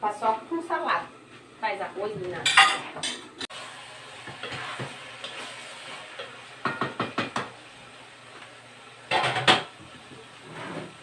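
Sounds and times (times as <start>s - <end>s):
kitchen clatter: 2.3s - 3.5s, 4.2s - 7.6s, 9.0s - 11.0s
meat sizzling in a pot: 2.9s - 11.0s.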